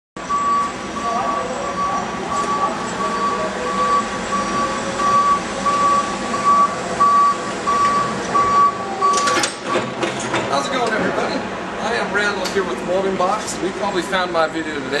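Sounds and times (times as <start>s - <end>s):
forklift warning beeps: 0.2s - 10.0s
forklift running: 0.2s - 15.0s.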